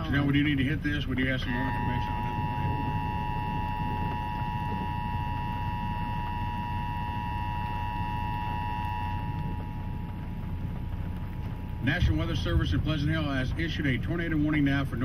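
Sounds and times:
low rumble: 0.0 - 15.0
two-tone alert signal: 1.4 - 10.0.

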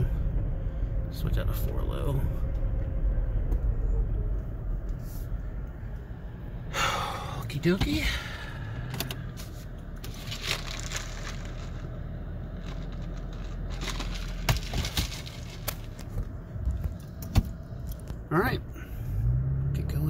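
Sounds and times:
truck engine idling: 0.0 - 19.3
gear shift clicks and clunks: 7.6 - 10.3.

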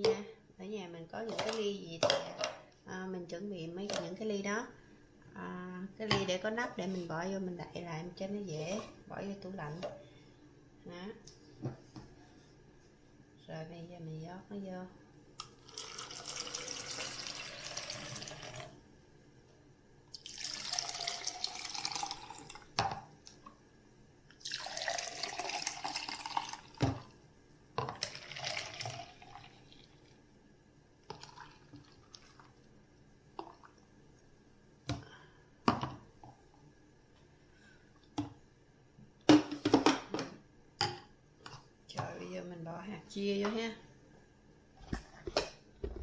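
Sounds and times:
juice pouring into plastic cups: 15.4 - 18.8, 20.1 - 22.8, 24.3 - 27.2, 27.9 - 30.1, 31.1 - 32.7.

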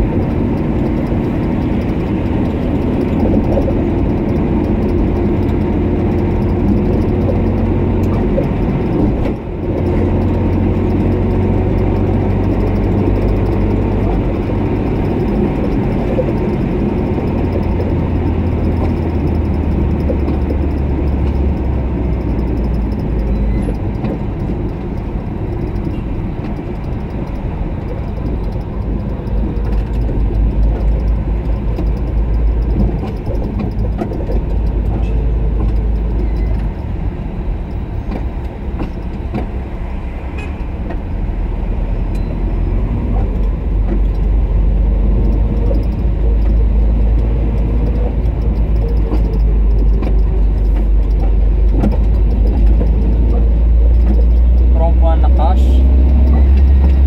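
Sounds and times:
car engine and tyres rumbling: 0.0 - 57.0.

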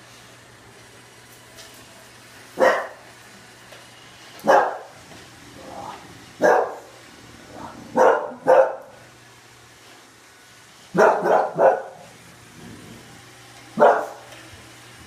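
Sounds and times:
dog barking: 2.6 - 3.0, 4.4 - 4.9, 6.4 - 6.9, 7.9 - 9.0, 11.0 - 12.1, 13.8 - 14.3.

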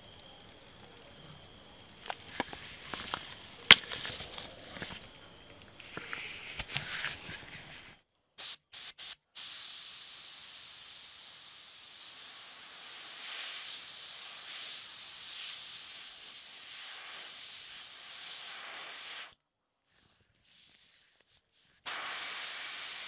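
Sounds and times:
airbrush spraying hiss: 1.8 - 19.4, 21.8 - 23.0
airbrush air puffs: 5.7 - 19.4, 21.8 - 23.0.

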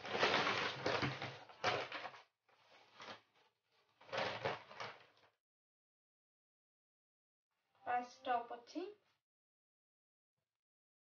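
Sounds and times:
paper bag rustling: 0.0 - 5.2.

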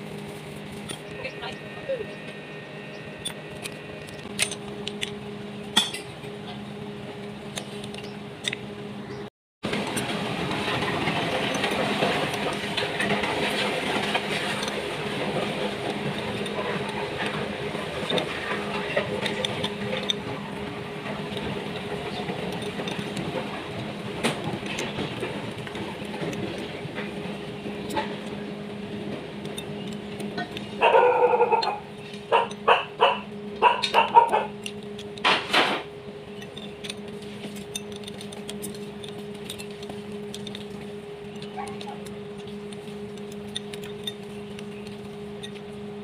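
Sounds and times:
steady machine hum: 0.0 - 46.0
spanners clinking on metal: 33.8 - 45.7
wrenches clicking on bolts: 36.3 - 45.6.

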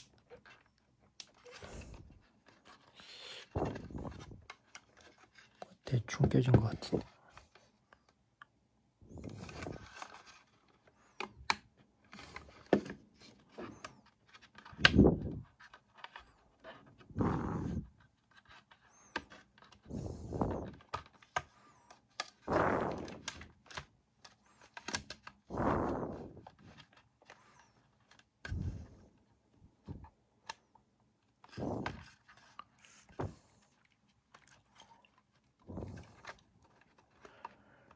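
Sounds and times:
plastic parts rubbing and clicking: 0.0 - 8.2, 9.1 - 29.2, 29.8 - 37.9
heavy breathing: 2.9 - 4.3, 17.0 - 18.0, 19.8 - 20.8, 25.5 - 26.6.

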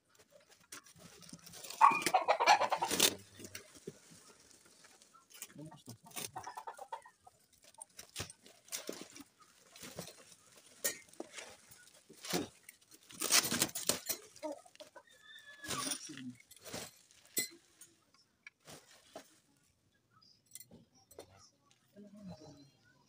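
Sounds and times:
chicken clucking: 0.5 - 12.6, 13.4 - 16.4
bubble wrap crinkling: 7.5 - 14.9.

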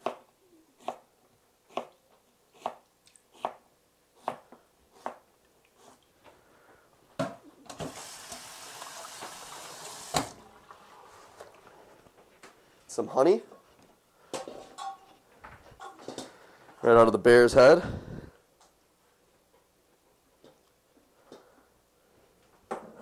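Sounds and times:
liquid pouring hiss: 7.8 - 11.4.

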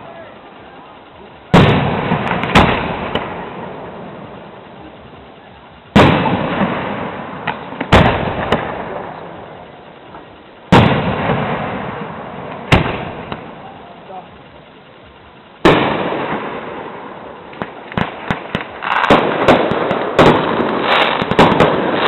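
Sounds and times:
firework bangs with echo: 1.5 - 5.0, 5.9 - 14.2, 15.6 - 22.0
small firework pops: 17.5 - 22.0.

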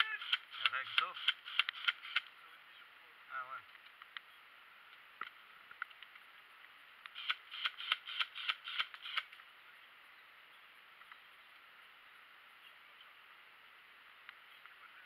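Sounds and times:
airsoft gun shots: 0.0 - 2.3, 7.2 - 9.3.

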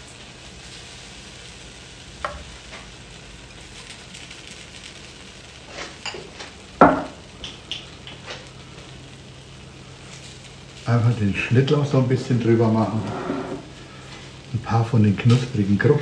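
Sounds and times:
food sizzling faintly: 0.0 - 16.0
dishes knocking: 6.8 - 7.6.

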